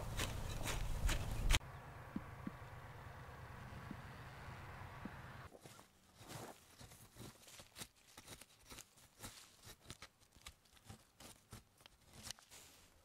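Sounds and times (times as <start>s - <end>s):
hoe scraping dry soil: 0.0s - 1.6s, 5.5s - 13.0s.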